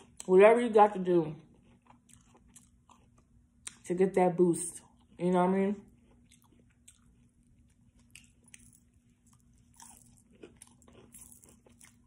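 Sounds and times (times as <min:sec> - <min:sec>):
faint steady hum: 0:00.0 - 0:12.0
crunchy taco shell chewing: 0:01.4 - 0:03.9, 0:05.9 - 0:12.0.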